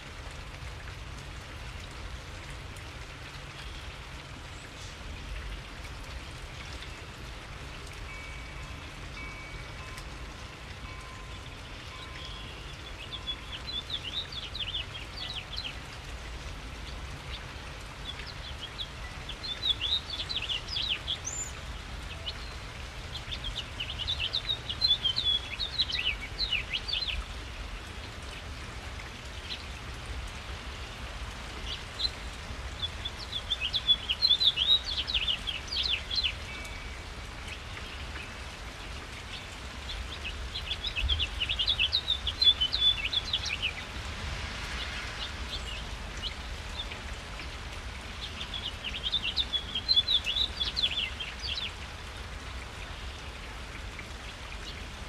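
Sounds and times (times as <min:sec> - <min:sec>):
rain falling: 0:00.0 - 0:55.0
songbird twittering: 0:18.1 - 0:27.3, 0:39.9 - 0:43.8, 0:48.2 - 0:51.8.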